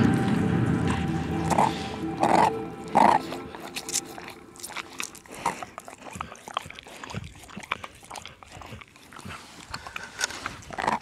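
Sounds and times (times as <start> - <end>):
dog sniffing and licking: 1.5 - 11.0
small clicks and scrapes on ice: 9.2 - 11.0.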